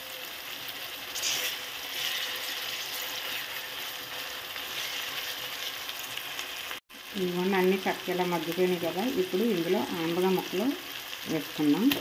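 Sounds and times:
vegetables sizzling in hot oil: 0:00.0 - 0:12.0
steel spoon stirring: 0:01.2 - 0:05.9.

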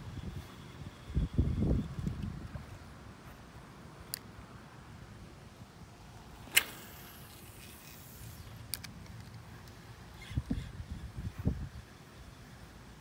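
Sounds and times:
wind rumble on microphone: 0:00.0 - 0:03.0, 0:10.2 - 0:11.9
faint high hiss: 0:02.7 - 0:10.4.

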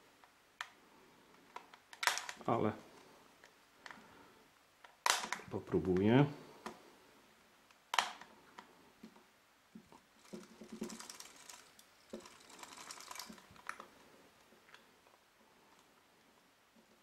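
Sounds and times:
plastic clicks and creaking: 0:01.4 - 0:02.5, 0:04.8 - 0:06.8, 0:09.9 - 0:13.9.

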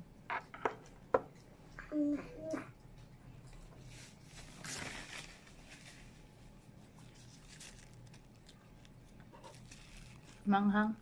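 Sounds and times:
noisy rustle: 0:03.8 - 0:08.2
person chewing food: 0:06.8 - 0:10.5.

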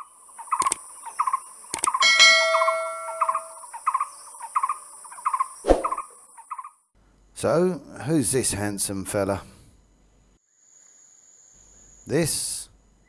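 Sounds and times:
mouse click: 0:00.6 - 0:00.8, 0:01.7 - 0:02.0
short chirping sound: 0:01.7 - 0:03.6
bell ding: 0:02.0 - 0:03.6.

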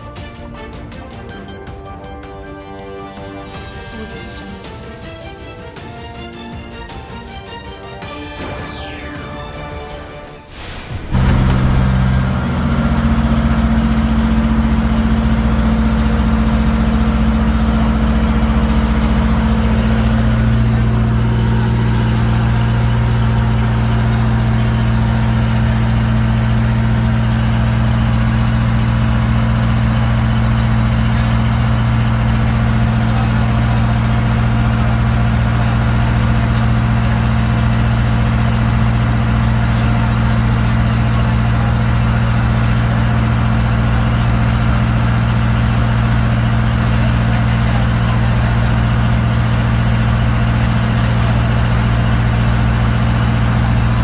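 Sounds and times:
boat engine droning: 0:08.1 - 0:54.0.

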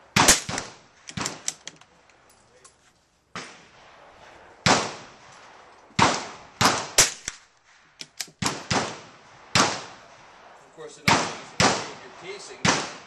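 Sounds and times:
gunshots: 0:00.0 - 0:01.6, 0:03.3 - 0:07.5, 0:08.3 - 0:13.0.

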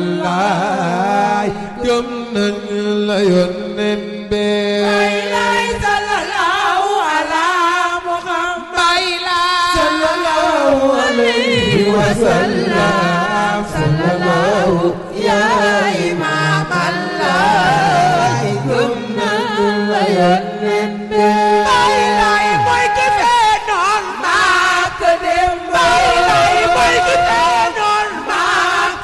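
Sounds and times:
person chanting a melody: 0:09.8 - 0:29.0.

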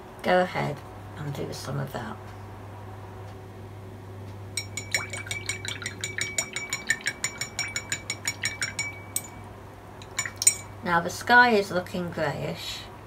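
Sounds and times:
brush handle clinking against glass: 0:04.6 - 0:09.4, 0:10.0 - 0:10.8
paintbrush rinsed in water: 0:04.7 - 0:09.3.

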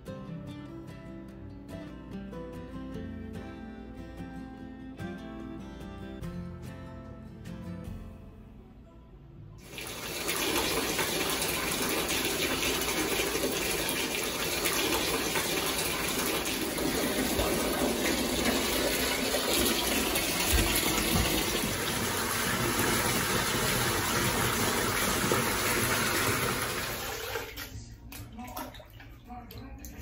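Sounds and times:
water gushing into bathtub: 0:09.6 - 0:30.0.

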